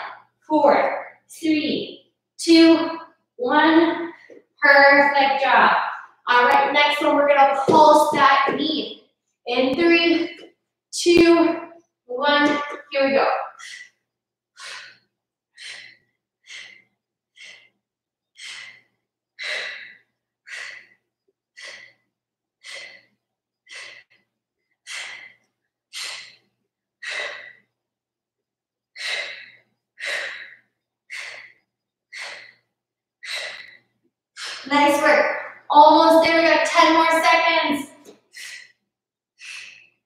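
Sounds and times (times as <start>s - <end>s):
woman breathing hard: 13.6s - 27.8s, 28.9s - 35.6s, 38.2s - 38.8s, 39.4s - 40.0s.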